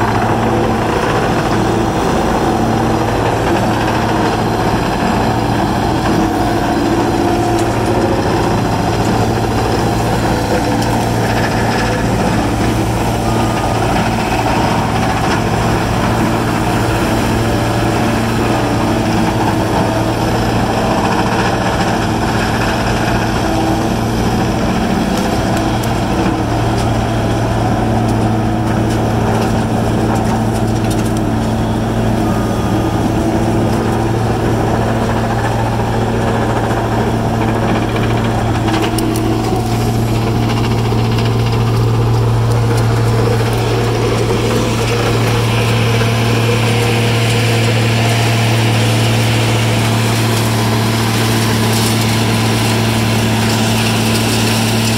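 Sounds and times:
low engine hum: 0:00.0 - 0:54.9
grinder grinding brush: 0:35.3 - 0:54.9.

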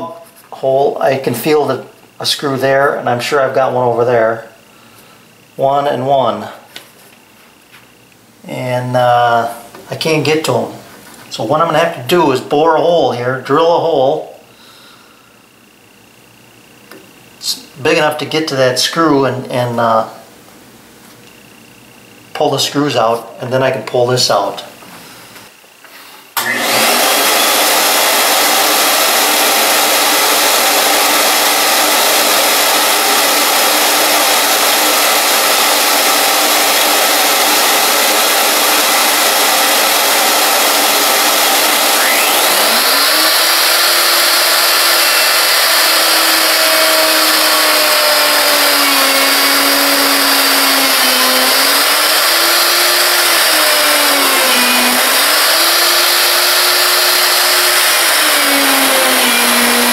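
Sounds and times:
shop vacuum running: 0:00.0 - 0:07.1, 0:21.8 - 0:59.9
router whining: 0:26.4 - 0:59.9.

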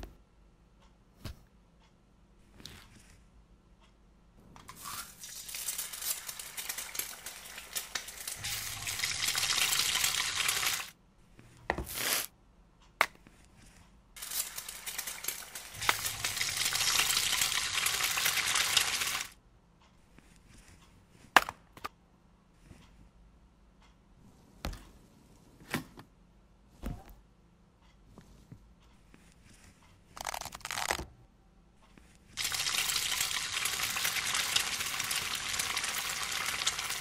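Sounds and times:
dense crackling sizzle: 0:04.7 - 0:11.0, 0:14.2 - 0:19.4, 0:32.4 - 0:37.0.

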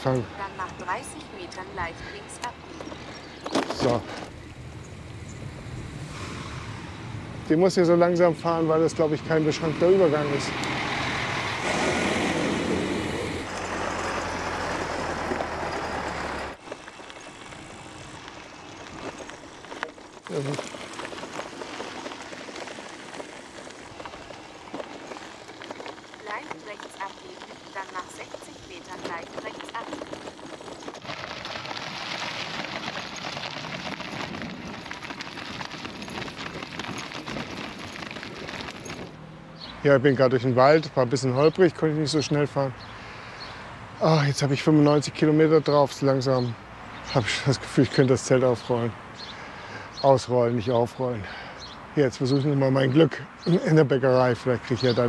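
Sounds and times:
tractor diesel engine running: 0:00.0 - 0:39.6
bike tyres crunching on gravel: 0:00.0 - 0:46.2, 0:46.8 - 0:55.0.

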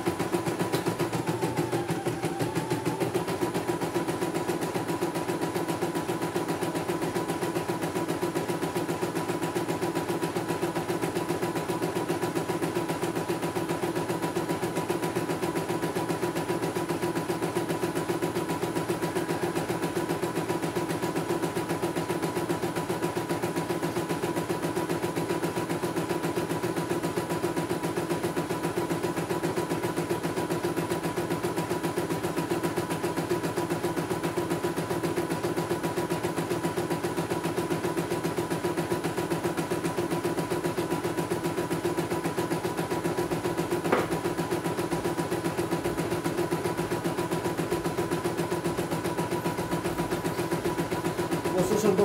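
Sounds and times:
motor hum: 0:00.0 - 0:07.8, 0:42.6 - 0:52.0.

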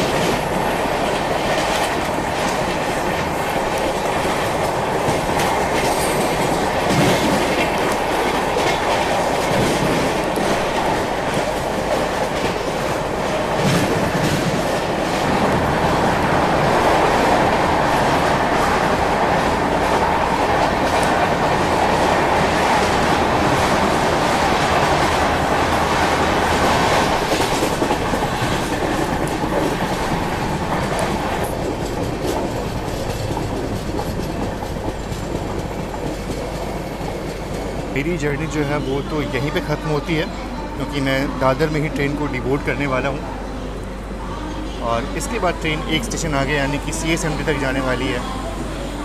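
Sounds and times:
clickety-clack over rail joints: 0:00.0 - 0:38.0
train wheels rumbling on track: 0:00.0 - 0:49.0.

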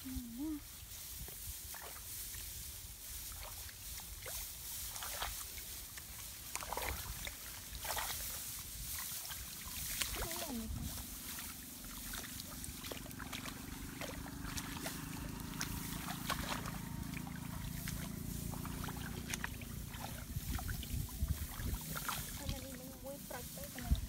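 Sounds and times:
rice plants rustling: 0:00.0 - 0:24.0
hands sloshing through muddy water: 0:00.8 - 0:24.0
low steady hum: 0:09.2 - 0:24.0.

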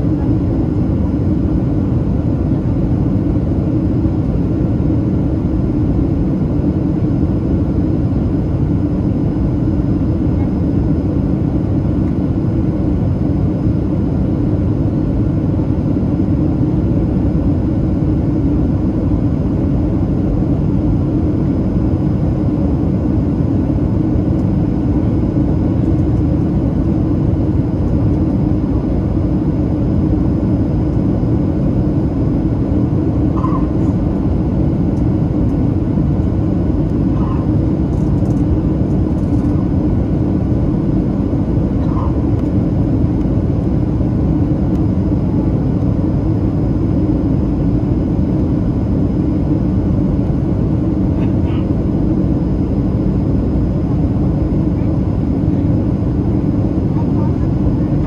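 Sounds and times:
aircraft cabin roar: 0:00.0 - 0:58.0.

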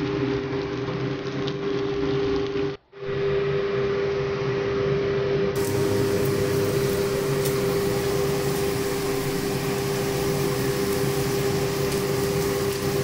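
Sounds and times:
electric motor hum: 0:05.6 - 0:13.0.

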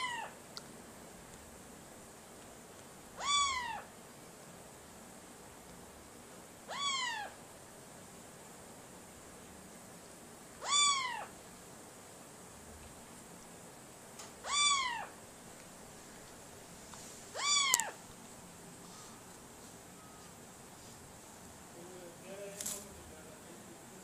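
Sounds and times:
cat meowing: 0:00.0 - 0:00.4, 0:03.2 - 0:03.9, 0:06.7 - 0:07.4, 0:10.6 - 0:11.4, 0:14.4 - 0:15.2, 0:17.3 - 0:18.0.

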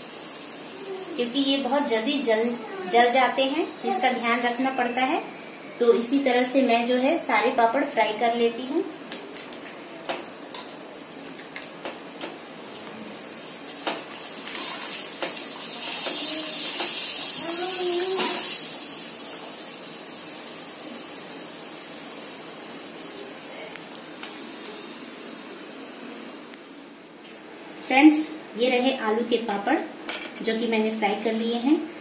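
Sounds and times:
papad sizzling in hot oil: 0:00.0 - 0:06.9, 0:09.1 - 0:23.6.

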